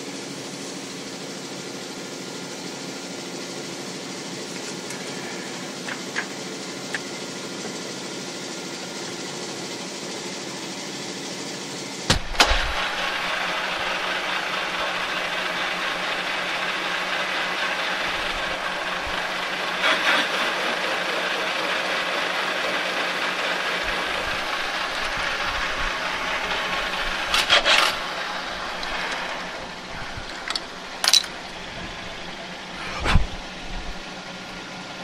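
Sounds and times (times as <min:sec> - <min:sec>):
metal lathe cutting: 0:12.5 - 0:30.6
motor hum: 0:23.7 - 0:35.0
sharp metallic sounds: 0:27.2 - 0:28.2.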